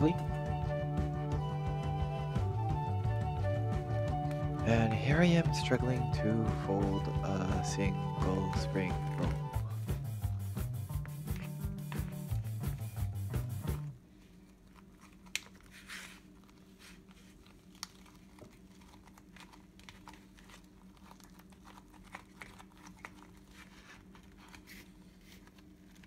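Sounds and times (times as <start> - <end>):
background music: 0.0 - 14.0
rice paper crinkling and tapping: 14.4 - 26.0.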